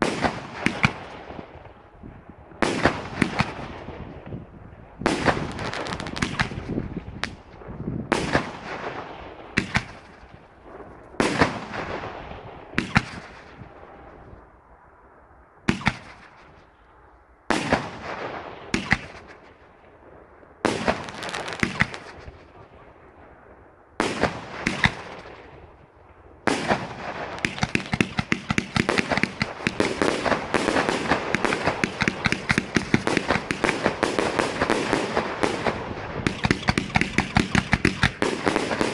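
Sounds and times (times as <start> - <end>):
firework shots banging: 0.0 - 1.4, 2.6 - 3.9, 5.1 - 8.9, 9.6 - 10.4, 17.5 - 19.5, 20.7 - 22.6, 24.0 - 25.5, 26.5 - 38.9
rapid crackling firework reports: 0.0 - 4.3, 5.0 - 14.4, 20.7 - 23.1, 24.0 - 25.8, 26.5 - 38.9.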